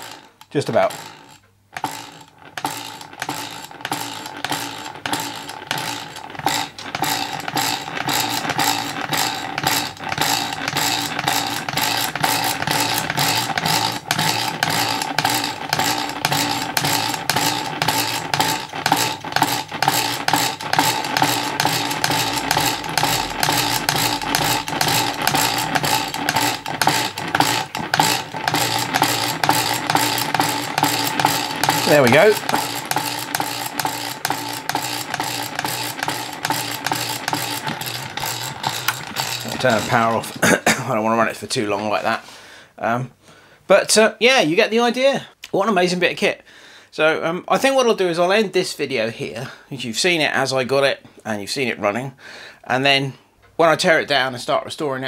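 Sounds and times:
engine rhythmic clicking and clatter: 1.8s - 40.6s.

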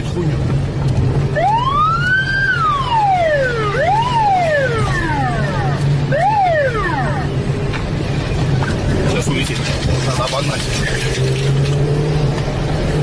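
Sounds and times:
car engine drone: 0.0s - 13.0s
police siren wailing: 1.3s - 7.5s.

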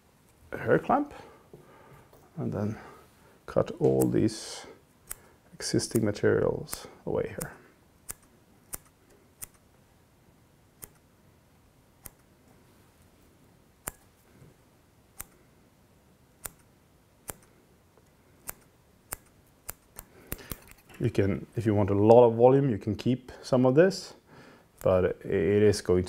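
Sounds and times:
scissors snipping: 3.8s - 4.2s, 18.4s - 21.0s.

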